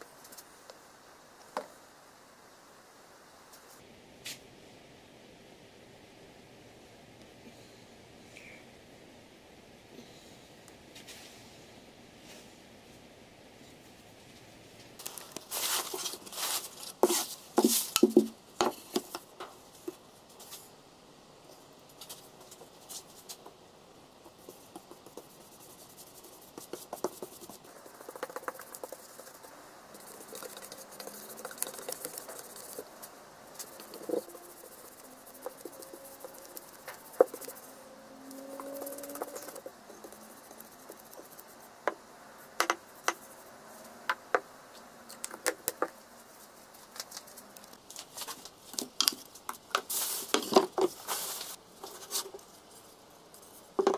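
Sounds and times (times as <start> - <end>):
paintbrush scrubbing wood: 15.1 - 18.2, 24.3 - 37.8, 38.5 - 41.8.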